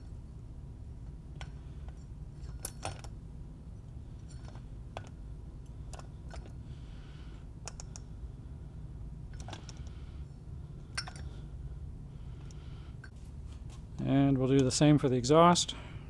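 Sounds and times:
low hum: 0:00.0 - 0:16.0
light metal clicks and clinks: 0:10.9 - 0:11.4.

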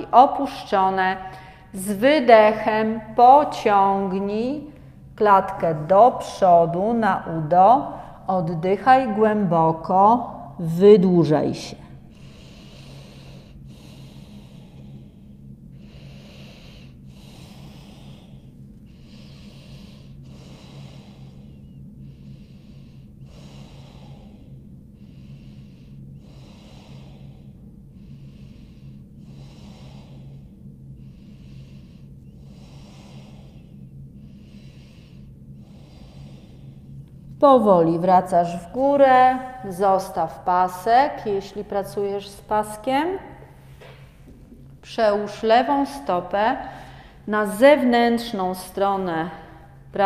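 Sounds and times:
steady low hum: 0:00.0 - 0:50.0
woman breathing deeply: 0:01.2 - 0:01.8, 0:07.8 - 0:08.3, 0:11.8 - 0:37.4, 0:38.4 - 0:47.8, 0:48.8 - 0:50.0.

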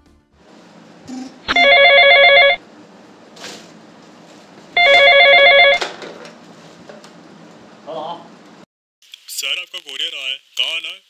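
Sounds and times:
telephone ringing: 0:01.1 - 0:02.6, 0:04.8 - 0:05.9.

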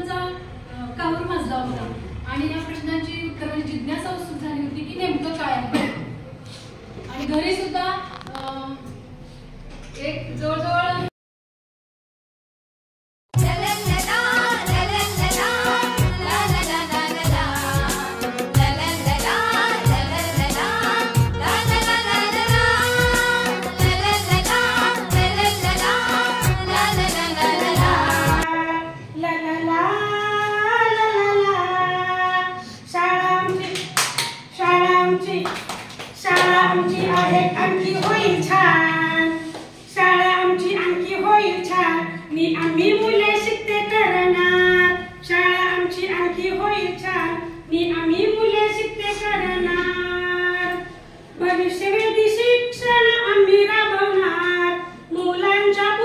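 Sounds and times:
music track: 0:13.4 - 0:28.4
person singing unaccompanied: 0:13.4 - 0:33.6
sharp claps or knocks: 0:33.5 - 0:34.5.

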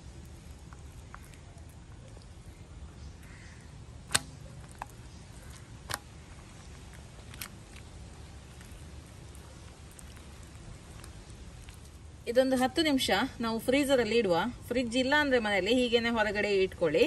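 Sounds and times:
low steady rumble: 0:00.0 - 0:17.0
wet paste clicks: 0:04.0 - 0:07.9.

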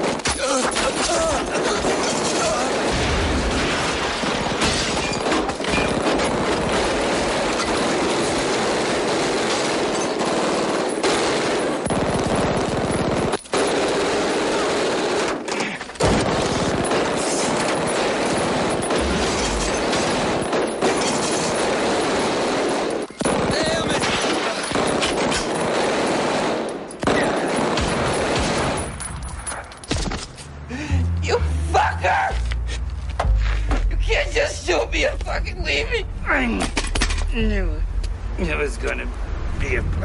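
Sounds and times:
rapid handgun shots: 0:01.7 - 0:29.0.

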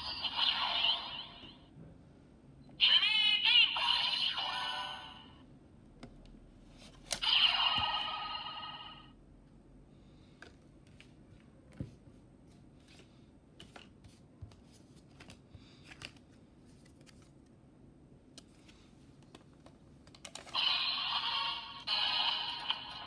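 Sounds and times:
toy electronic sound effect: 0:00.0 - 0:01.6, 0:02.8 - 0:05.3, 0:07.2 - 0:09.1, 0:20.5 - 0:23.0.

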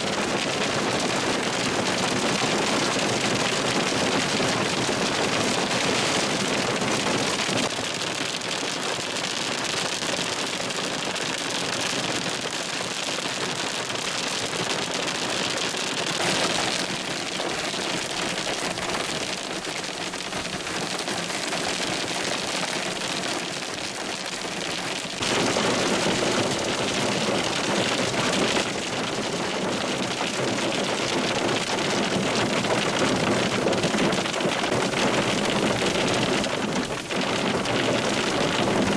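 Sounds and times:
hail and heavy rain pelting: 0:00.0 - 0:38.9.

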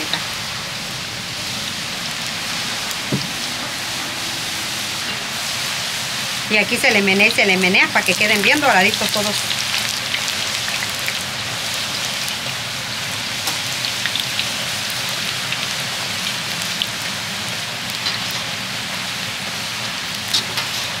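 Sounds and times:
tortillas sizzling in hot oil: 0:00.0 - 0:21.0.

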